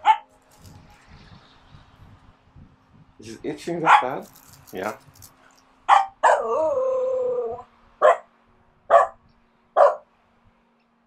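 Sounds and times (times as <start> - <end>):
dog barking: 0.0 - 0.2, 3.8 - 4.2, 5.9 - 6.6, 8.0 - 8.3, 8.9 - 9.2, 9.8 - 10.1
dog yowling: 5.9 - 8.2.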